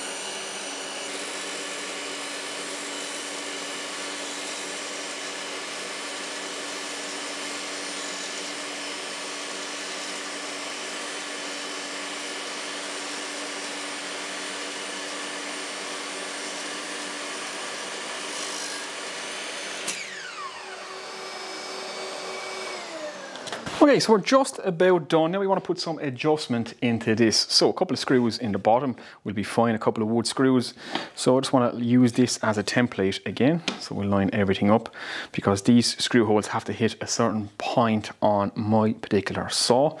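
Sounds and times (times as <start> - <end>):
table saw whining: 0.0 - 24.6.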